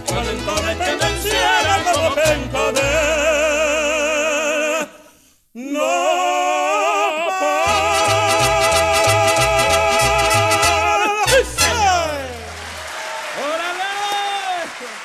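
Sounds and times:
mariachi band playing: 0.0 - 4.2, 7.6 - 12.8
tenors singing operatic vibrato: 0.0 - 12.5.

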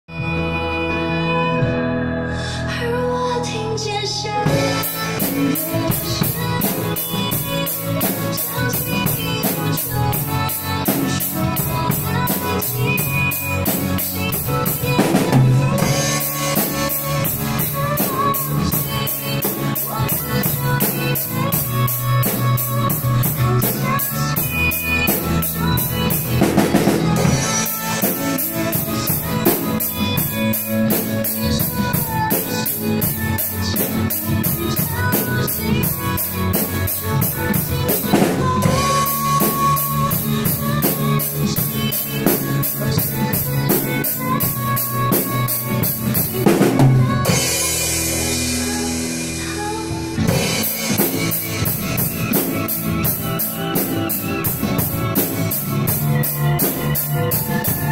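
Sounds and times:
pop song backing track: 0.1 - 57.9
acoustic drum kit playing: 4.4 - 57.9.

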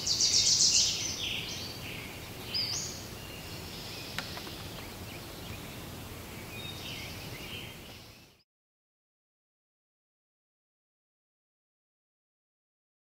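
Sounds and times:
birds singing: 0.0 - 8.4.

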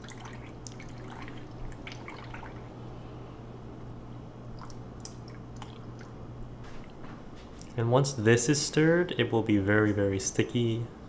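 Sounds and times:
milk pouring and splashing: 0.0 - 2.7
low hum: 0.0 - 8.8.

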